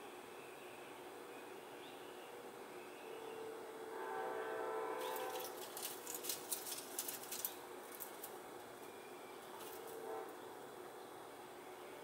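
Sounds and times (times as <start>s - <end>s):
dove wings clattering: 5.0s - 8.4s.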